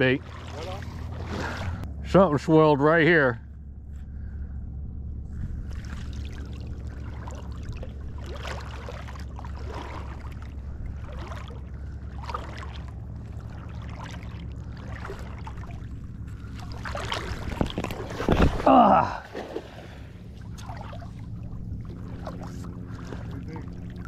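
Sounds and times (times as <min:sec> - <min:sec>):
steady low hum: 0:00.0 - 0:24.0
water dripping and splashing: 0:05.7 - 0:19.8, 0:20.4 - 0:24.0.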